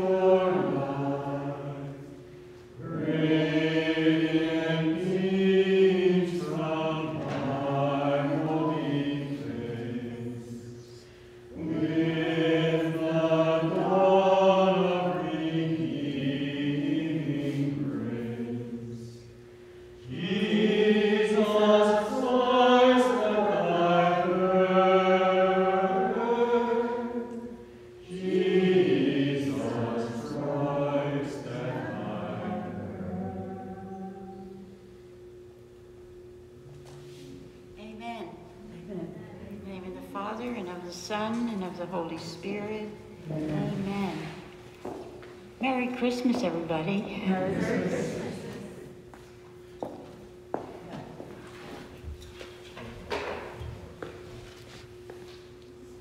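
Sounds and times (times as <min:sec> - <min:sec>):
group singing sacred song: 0:00.0 - 0:35.0, 0:42.3 - 0:45.5, 0:47.0 - 0:49.3.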